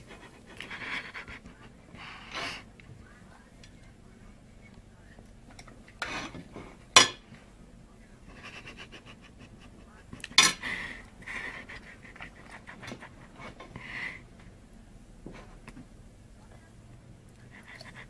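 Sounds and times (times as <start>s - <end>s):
breathy panting: 0.0s - 2.8s, 8.3s - 14.4s, 17.4s - 18.0s.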